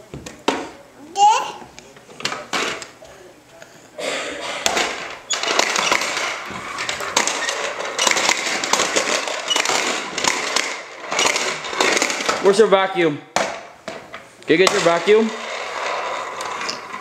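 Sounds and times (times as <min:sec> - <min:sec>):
popper toy balls rattling: 0:04.8 - 0:12.6.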